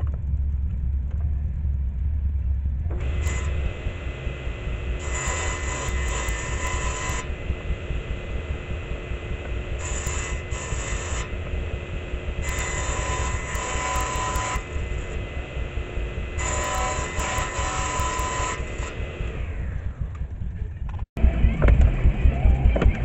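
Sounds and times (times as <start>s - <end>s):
saw blade ripping wood: 2.9s - 15.5s, 16.3s - 19.6s
table saw motor hum: 2.9s - 20.3s.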